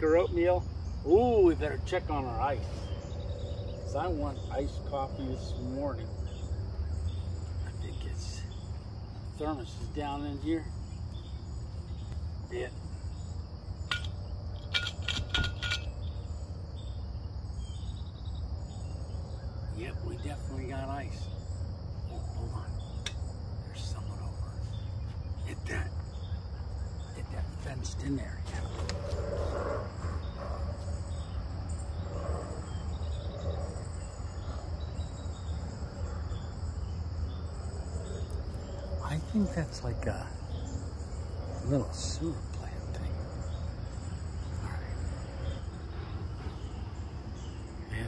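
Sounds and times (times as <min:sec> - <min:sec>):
crickets chirring: 0:00.0 - 0:48.0
high-pitched insect trill: 0:00.0 - 0:48.0
low hum: 0:00.8 - 0:09.4.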